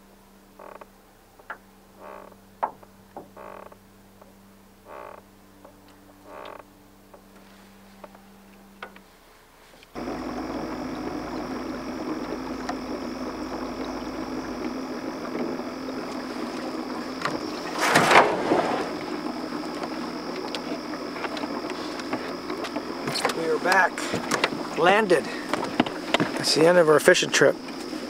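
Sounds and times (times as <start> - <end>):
boat motor running: 0.0 - 7.4, 10.0 - 28.0
loud rushing burst: 17.8 - 19.1.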